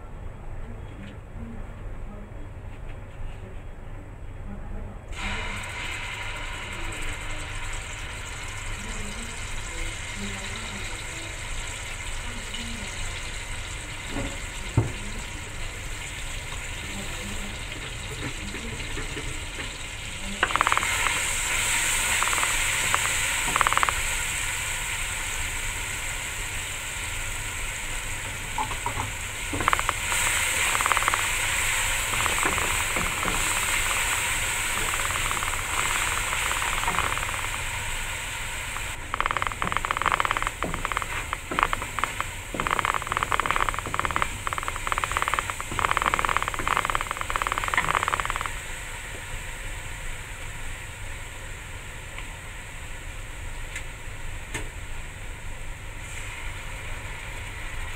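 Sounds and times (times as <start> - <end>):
spice paste sizzling in hot oil: 5.2 - 51.2.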